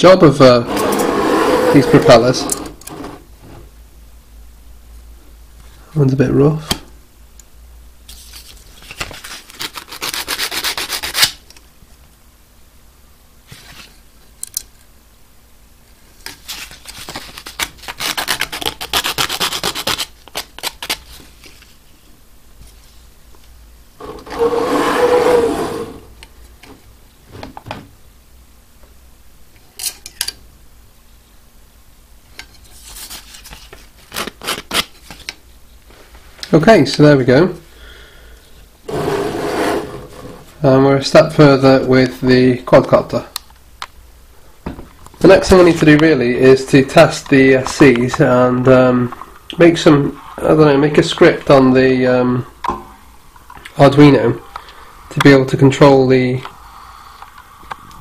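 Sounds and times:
sandpaper rubbing on plastic: 9.2 - 11.3, 17.0 - 20.1, 24.0 - 26.0.

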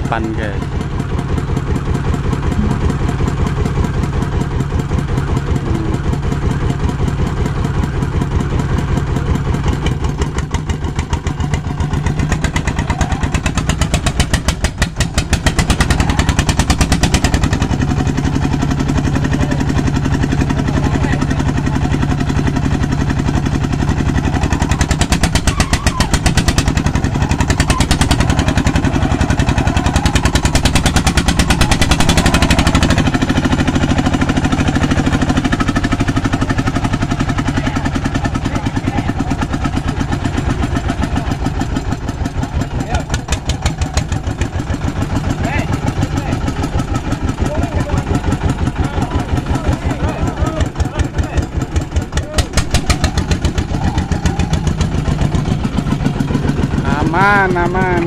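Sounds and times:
small engine thudding: 22.8 - 37.4, 39.2 - 56.8.

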